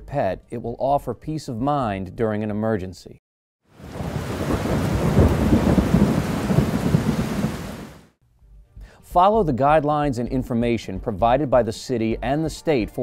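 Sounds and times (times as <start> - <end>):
steady rain: 3.7 - 8.2
thunder rumbling: 3.8 - 8.1.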